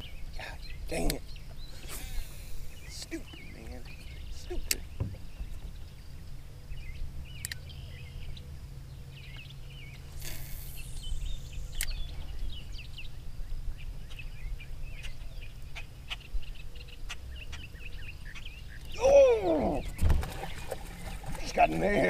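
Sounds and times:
steady low rumble: 0.0 - 18.8
birds chirping: 0.0 - 22.0
sharp clicks: 7.4 - 7.6, 11.8 - 12.0.

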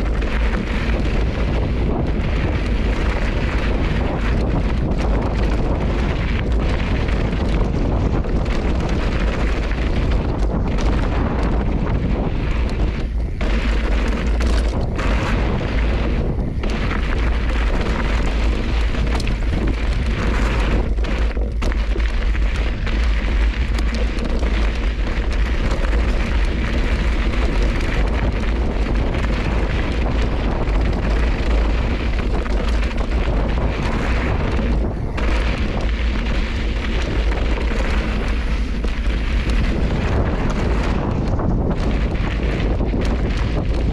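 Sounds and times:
bike knocking: 0.0 - 43.9
deep rumble: 0.0 - 43.9
tyres crunching over gravel: 0.0 - 43.9
wind buffeting microphone: 0.0 - 43.9.

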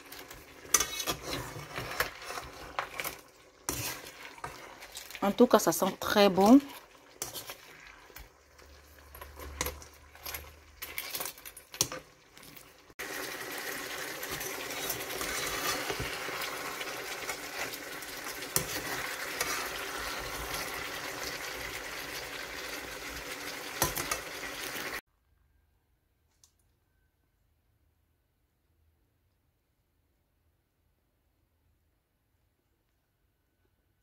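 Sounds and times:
spatula scraping frying pan: 0.0 - 12.0, 13.0 - 25.0
sauce frying: 0.0 - 25.0.

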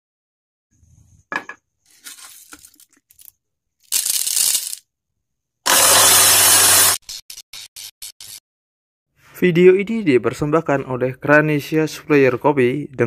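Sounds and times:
coffee beans rattling on glass: 3.9 - 4.8
grinder motor rushing: 5.7 - 7.0.

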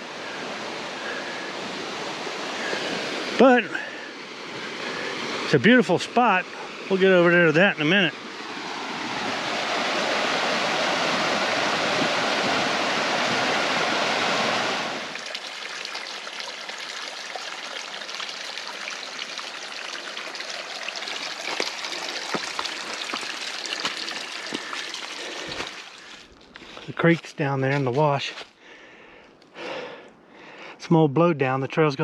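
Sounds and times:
trickling water: 0.0 - 7.9, 15.0 - 27.2
creek rushing over rocks: 0.0 - 28.4.

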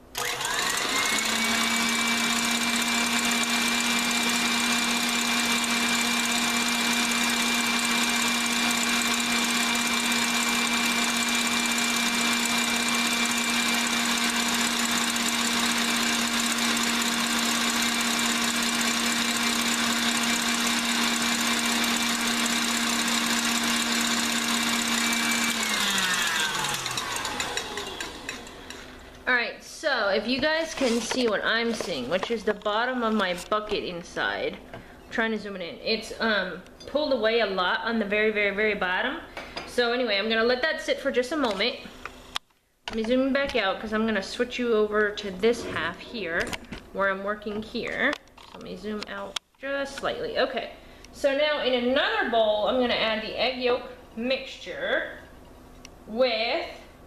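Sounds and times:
stand mixer motor humming: 0.1 - 28.9.

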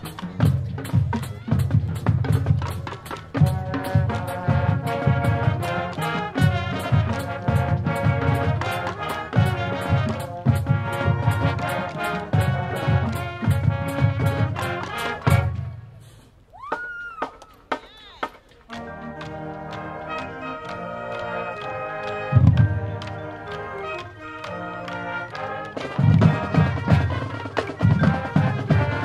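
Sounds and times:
steady drum beat: 0.0 - 15.8, 25.0 - 29.0
brass chords: 0.0 - 16.2, 18.7 - 29.0.

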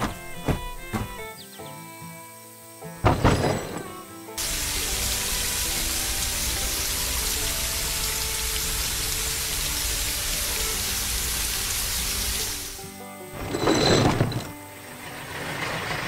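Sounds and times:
faint background music: 0.0 - 16.0
water hose spraying: 3.9 - 12.9.

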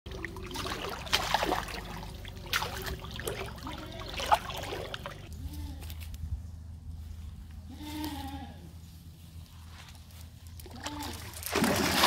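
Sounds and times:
fish thrashing in water: 0.1 - 5.3, 11.2 - 12.0
water splashing and trickling: 0.1 - 5.3, 10.6 - 12.0.

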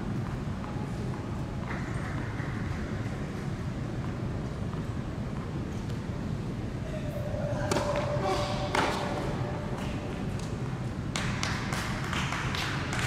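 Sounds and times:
indoor hall rumble: 6.4 - 13.0
racket hitting tennis ball: 7.5 - 10.7.

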